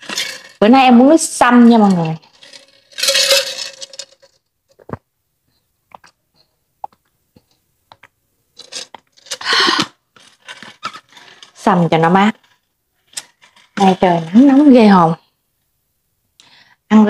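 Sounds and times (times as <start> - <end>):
metal lid clinking and scraping: 0.0 - 0.7, 1.8 - 4.3, 8.6 - 9.5.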